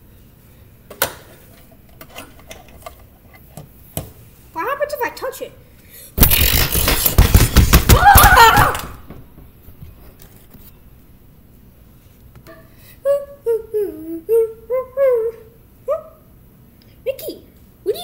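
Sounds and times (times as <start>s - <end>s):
loud crackling noise: 6.2s - 9.1s
wavering high cry: 7.9s - 9.0s
high voice squeaking and humming: 13.0s - 16.2s.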